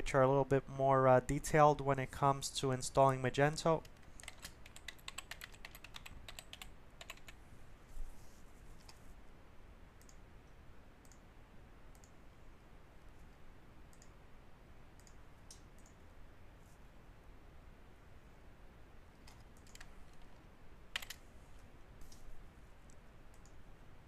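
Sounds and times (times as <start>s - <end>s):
typing on computer keyboard: 3.8s - 7.4s, 19.2s - 21.2s.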